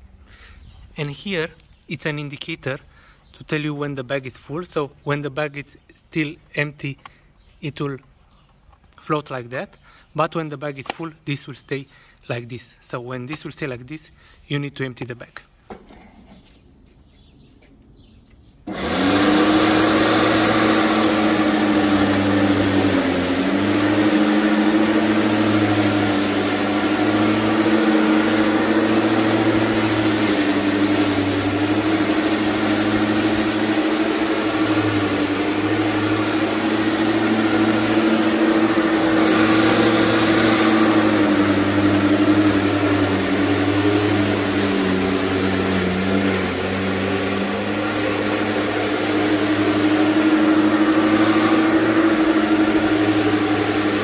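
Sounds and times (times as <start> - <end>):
electric lawn mower cutting grass: 18.6 - 54.0.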